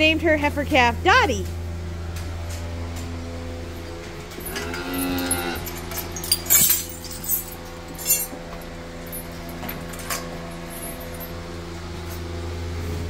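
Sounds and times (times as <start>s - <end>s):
machine hum: 0.0s - 13.0s
light metallic clinks: 3.8s - 11.5s.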